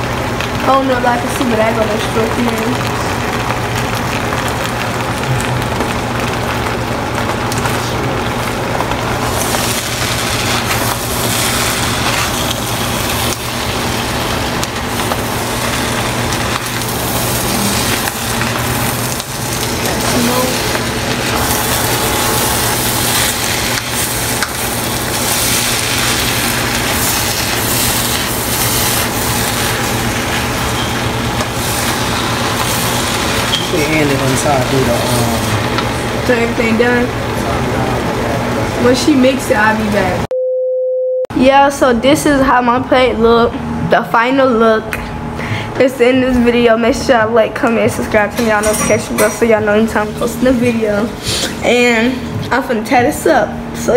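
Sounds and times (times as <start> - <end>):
rice hissing in a wok: 0.0 - 39.1
steady low hum: 0.0 - 53.9
spatula scraping a wok: 19.9 - 33.8.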